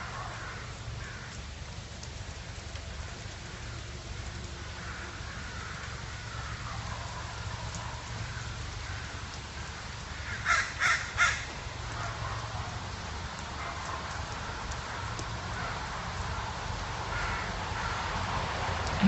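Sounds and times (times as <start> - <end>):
crow cawing: 0.4 - 1.4, 4.8 - 6.7, 8.2 - 12.2, 17.1 - 18.1.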